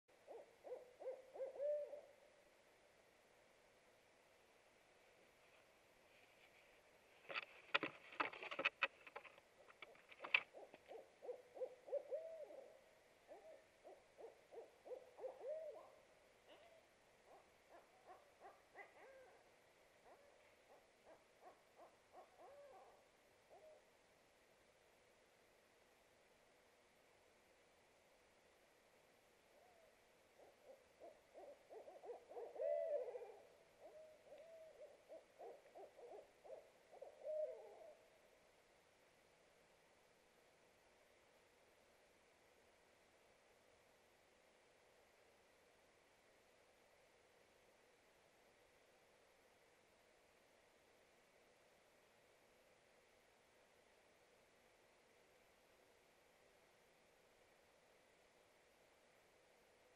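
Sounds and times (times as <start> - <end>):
owls hooting: 0.2 - 2.2, 9.8 - 19.4, 20.0 - 23.8, 29.6 - 38.1
scrapes and knocks in nest box: 7.3 - 10.4.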